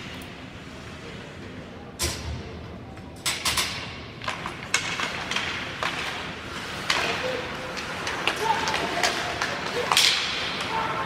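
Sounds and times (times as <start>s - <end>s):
hockey sticks clacking: 3.0s - 11.0s
skates scraping ice: 4.2s - 11.0s.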